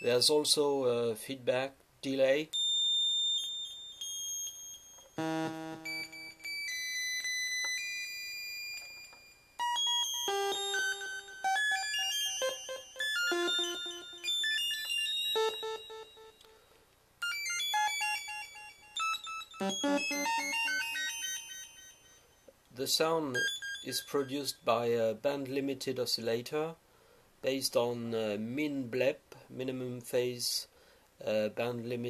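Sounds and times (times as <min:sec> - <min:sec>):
sawtooth synth notes with delay: 0:10.3 - 0:14.7, 0:19.6 - 0:21.3.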